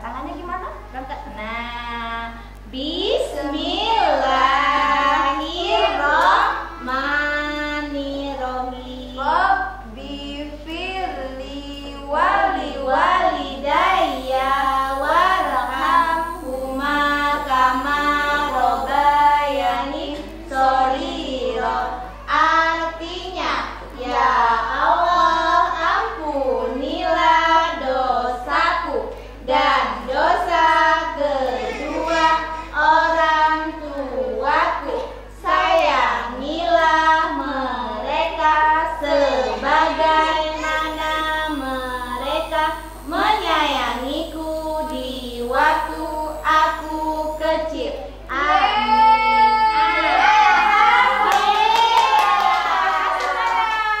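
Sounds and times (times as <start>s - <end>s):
woman singing: 3.0s - 23.3s, 32.8s - 52.6s
young child singing: 29.5s - 54.0s.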